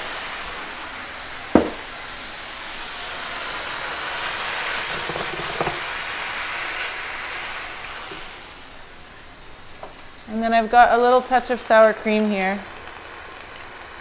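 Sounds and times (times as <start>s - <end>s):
mushrooms sizzling in a frying pan: 0.0s - 14.0s
sharp knock: 1.6s - 1.9s
wooden spoon knocking on pan: 1.6s - 1.9s.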